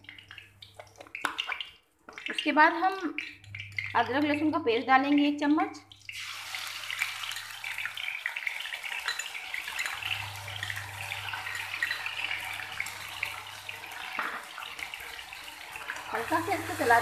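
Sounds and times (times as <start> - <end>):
food sizzling in hot oil: 6.0 - 17.0.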